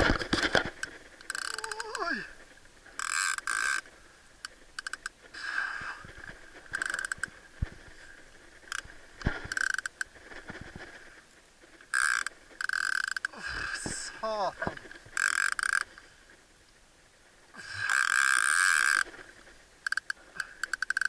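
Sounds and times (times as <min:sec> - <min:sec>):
fishing reel clicking and whirring: 0:00.8 - 0:02.1, 0:03.0 - 0:05.2, 0:06.7 - 0:07.3, 0:09.5 - 0:10.1, 0:11.9 - 0:13.3, 0:15.2 - 0:15.9, 0:17.8 - 0:19.1, 0:19.8 - 0:21.0.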